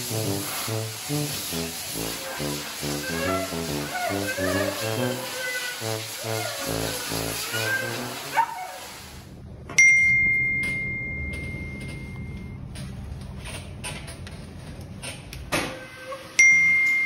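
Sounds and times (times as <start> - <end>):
bright bell ding: 9.8 - 12.6.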